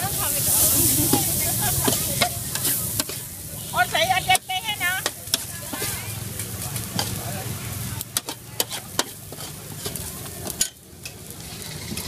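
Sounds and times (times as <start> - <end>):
noodles sizzling on a metal pan: 0.0 - 12.0
metal tongs clinking against a pan: 1.0 - 3.2, 4.2 - 7.2, 8.0 - 11.2.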